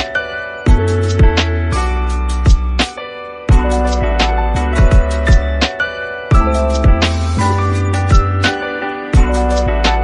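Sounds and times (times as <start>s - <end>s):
background music with beat: 0.0s - 10.0s
bass line: 3.5s - 5.6s, 6.4s - 8.5s.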